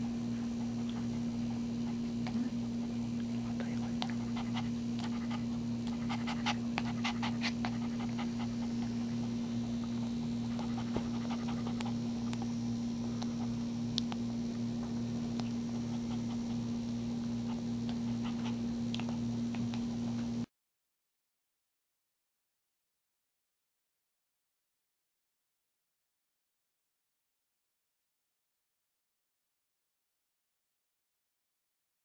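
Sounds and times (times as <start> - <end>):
steady low hum: 0.0 - 20.5
puppy suckling clicks: 3.2 - 9.0, 10.5 - 12.5, 13.2 - 14.2, 15.3 - 20.3.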